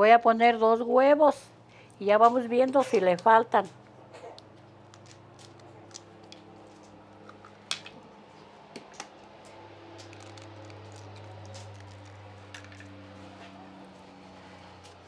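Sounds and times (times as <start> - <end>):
steady low hum: 0.0 - 15.0
eggs cracking on pot rim: 10.0 - 12.9.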